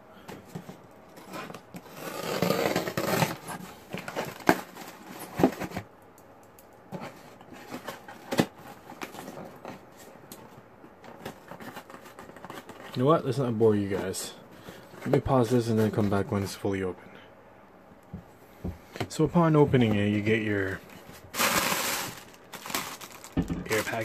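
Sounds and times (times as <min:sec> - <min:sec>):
cardboard and tape rustling: 0:00.2 - 0:05.9, 0:06.9 - 0:16.5, 0:18.8 - 0:24.0.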